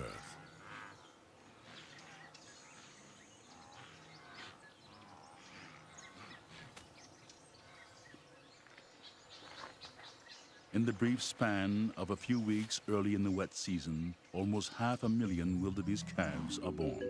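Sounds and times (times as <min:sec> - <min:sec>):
bird calls and chirps: 0:00.0 - 0:17.0
low steady hiss: 0:06.8 - 0:17.0.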